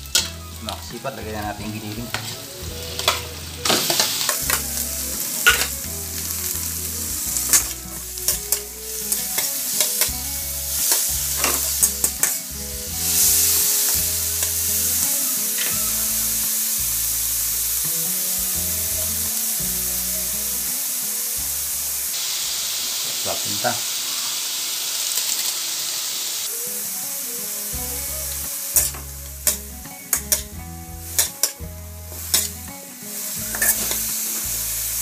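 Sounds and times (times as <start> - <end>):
meat sizzling: 0.0 - 35.0
metal spatula scraping wok: 0.1 - 16.3, 28.6 - 34.4.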